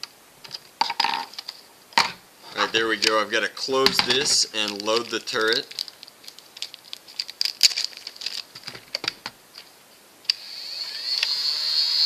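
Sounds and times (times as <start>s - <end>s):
plastic bag crinkling: 2.6s - 9.7s
toy blaster flywheel motor whine: 10.3s - 12.0s.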